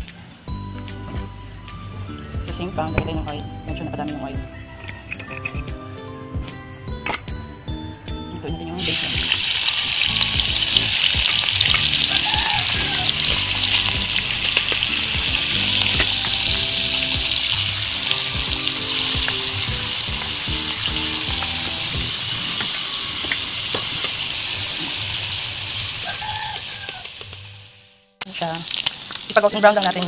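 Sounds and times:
bacon sizzling in oil: 0:08.8 - 0:30.0.

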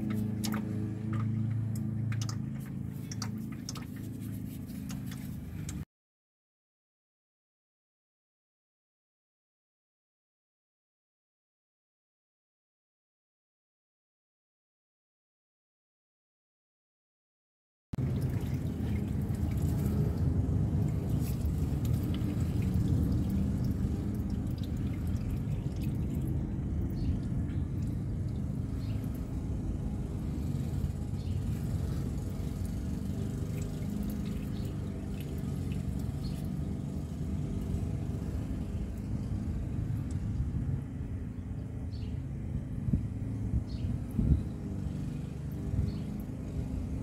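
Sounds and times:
fluid trickling and dripping: 0:00.0 - 0:05.8, 0:18.0 - 0:40.7, 0:43.7 - 0:47.0.

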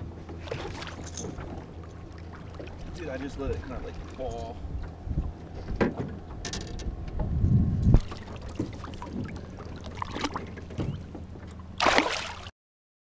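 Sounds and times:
handling knocks on boat: 0:04.7 - 0:11.6
fish splashing into water: 0:11.8 - 0:12.5.

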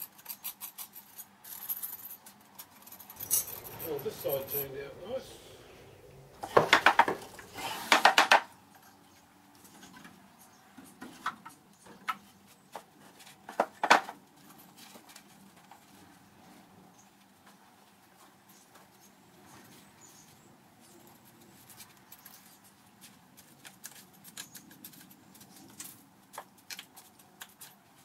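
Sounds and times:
sharp knocks and wooden clatter: 0:06.4 - 0:08.5, 0:10.9 - 0:14.2.

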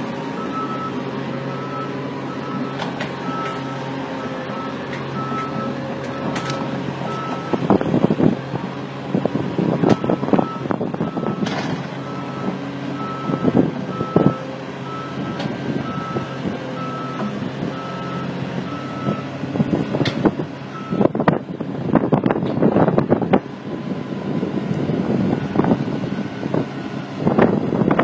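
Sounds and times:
diesel engine hum: 0:00.0 - 0:28.0
excavator travel alarm beeping: 0:00.3 - 0:07.7, 0:09.8 - 0:19.4, 0:20.7 - 0:21.2.

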